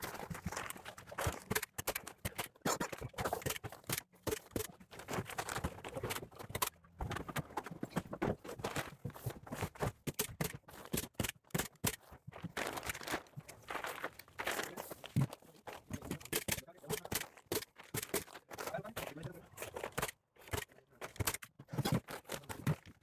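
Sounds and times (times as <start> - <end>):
footsteps on stepladder: 0.0 - 23.0
plastic sheeting crinkling: 12.4 - 15.6.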